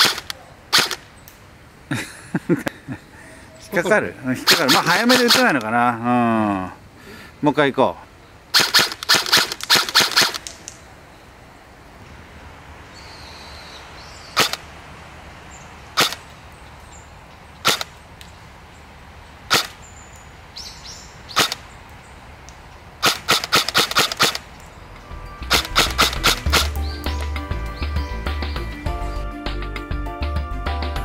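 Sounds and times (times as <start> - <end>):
airsoft gun shots: 0.0 - 1.0, 4.5 - 5.6, 8.5 - 10.6, 14.4 - 14.6, 16.0 - 16.2, 17.6 - 17.9, 19.5 - 19.8, 21.3 - 21.6, 23.0 - 24.5, 25.5 - 26.8.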